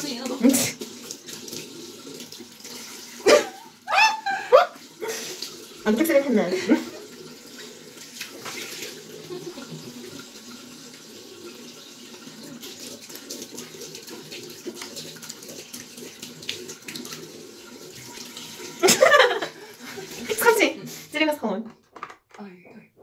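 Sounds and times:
water splashing: 0.0s - 20.7s
tap running into sink: 8.0s - 9.0s.

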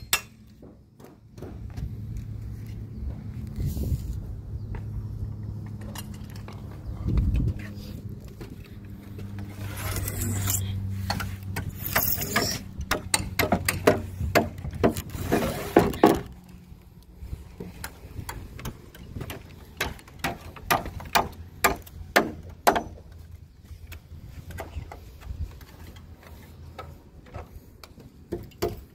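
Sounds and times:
timber framing clicks and knocks: 0.0s - 2.0s, 11.0s - 15.1s, 17.6s - 28.9s.

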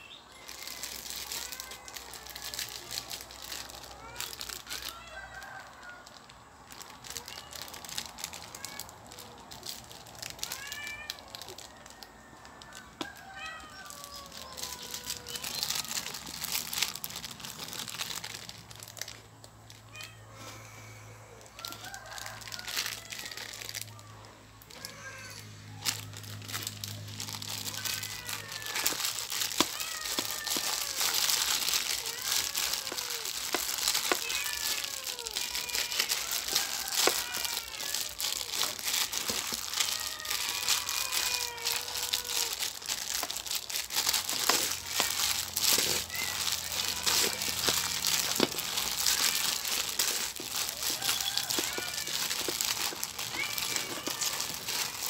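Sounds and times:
plastic bag crinkling and rustling: 0.0s - 55.0s
cats meowing: 0.3s - 5.6s, 7.1s - 12.4s, 13.0s - 18.6s, 19.8s - 21.6s, 22.2s - 55.0s.

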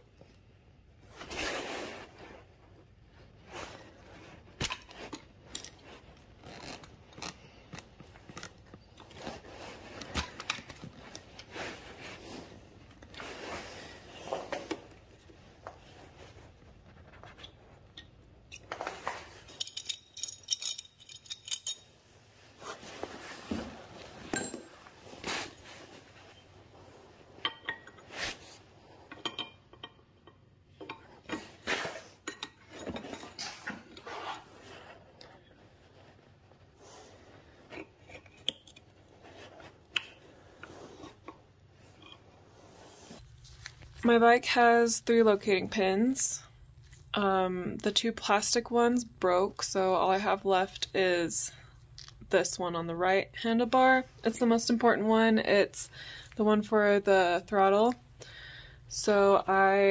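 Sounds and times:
tools clinking on metal parts: 18.0s - 22.0s, 24.3s - 24.8s, 29.1s - 31.5s.

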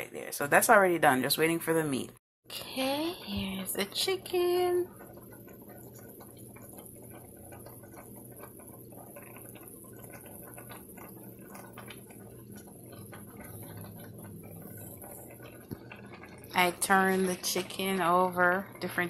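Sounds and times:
low steady hum: 0.0s - 19.0s
sauce bubbling in a pan: 2.5s - 19.0s.

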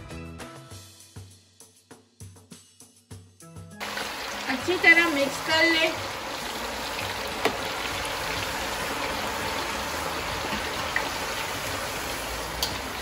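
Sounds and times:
potato chips sizzling in hot oil: 3.8s - 13.0s.

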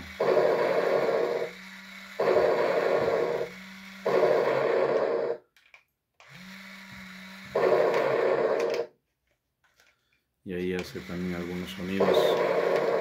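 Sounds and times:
toy gear motor running: 0.0s - 5.4s, 6.2s - 8.9s, 10.6s - 13.0s.

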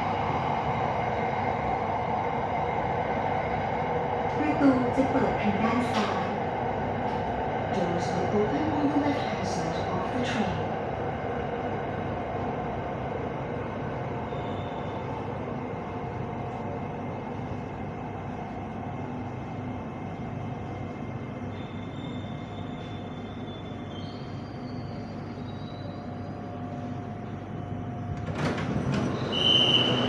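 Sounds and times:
train running noise: 0.0s - 30.0s
sliding doors opening: 28.1s - 30.0s.

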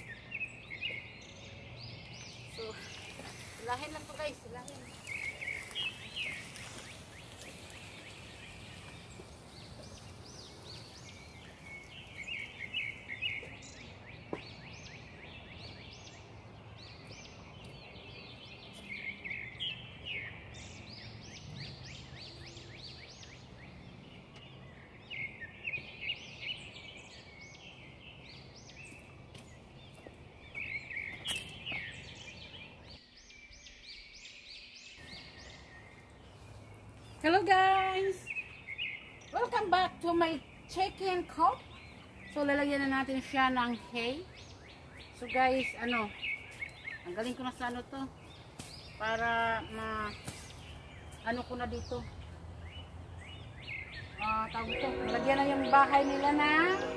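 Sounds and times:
outdoor background noise: 0.0s - 56.9s
songbird chirping: 0.0s - 56.9s.

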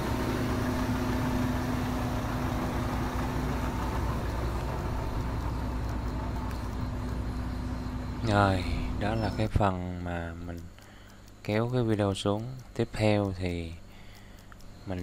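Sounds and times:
street traffic: 0.0s - 9.6s
steady engine hum: 0.0s - 15.0s.

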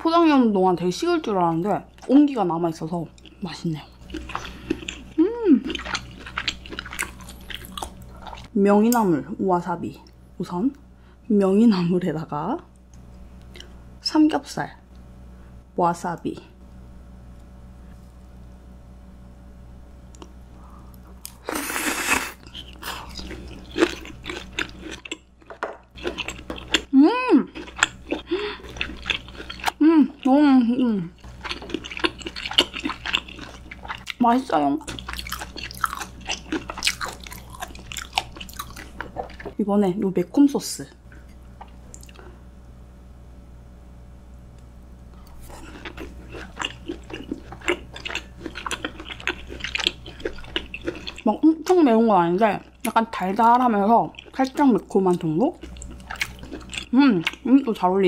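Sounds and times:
close chewing with crunches: 1.5s - 8.5s, 21.2s - 26.9s, 27.5s - 30.4s, 31.2s - 39.6s, 45.1s - 57.5s.

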